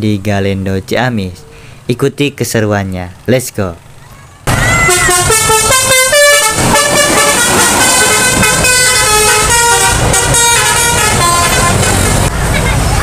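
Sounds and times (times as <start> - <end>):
traffic noise: 0.0 - 13.0
multi-tone air horn tune: 4.9 - 12.1.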